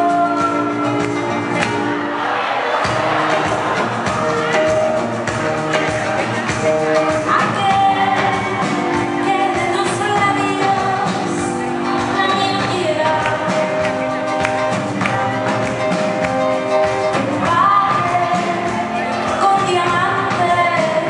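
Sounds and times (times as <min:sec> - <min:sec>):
woman singing live: 0:00.0 - 0:01.3, 0:07.1 - 0:14.7, 0:17.1 - 0:21.0
acoustic guitar and band: 0:00.0 - 0:21.0.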